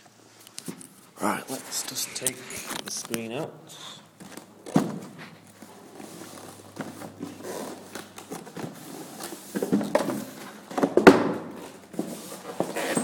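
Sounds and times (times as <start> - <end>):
cardboard and packing rustling: 4.1 - 13.0.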